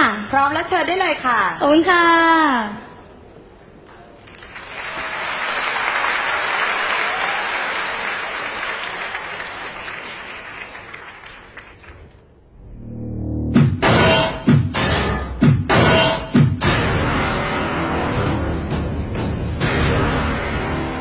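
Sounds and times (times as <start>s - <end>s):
studio audience applauding: 4.3s - 12.2s
music with low tone and hits: 12.7s - 21.0s.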